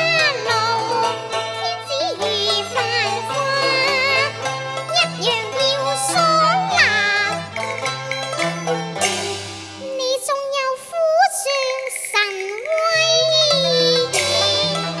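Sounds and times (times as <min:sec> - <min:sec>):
child singing opera: 0:00.0 - 0:07.5, 0:09.8 - 0:15.0
plucked pipa: 0:00.0 - 0:15.0
cello bass line: 0:02.3 - 0:09.8.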